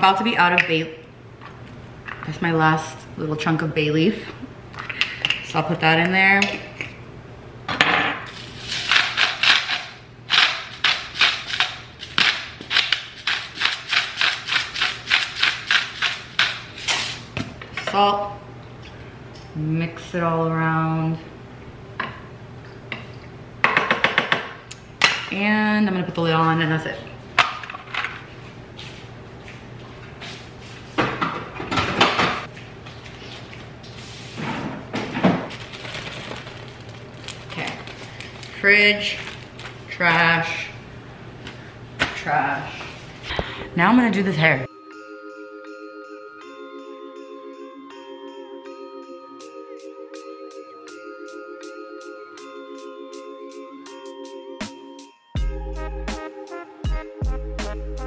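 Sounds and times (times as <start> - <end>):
salt grinder crunching: 8.3 - 17.2
kitchen knocks and rattles: 31.0 - 32.5, 34.5 - 35.6.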